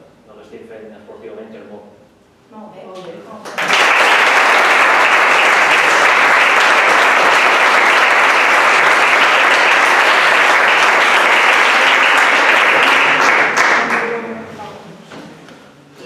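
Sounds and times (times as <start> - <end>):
people applauding: 3.5 - 14.3.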